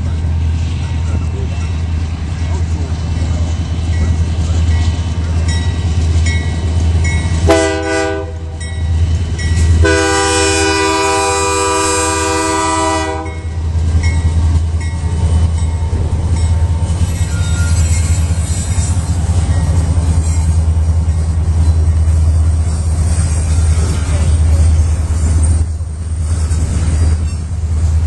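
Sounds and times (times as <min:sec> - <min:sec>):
train rumbling past: 0:00.0 - 0:28.0
locomotive horn blasts: 0:07.4 - 0:08.6, 0:09.8 - 0:13.6.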